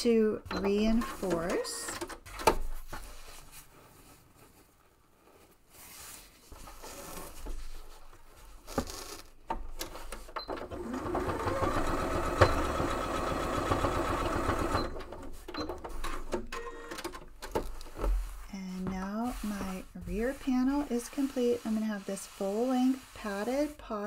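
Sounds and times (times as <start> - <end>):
fabric rustling: 2.6 - 9.4, 17.4 - 24.0
sewing machine stitching: 10.4 - 15.3.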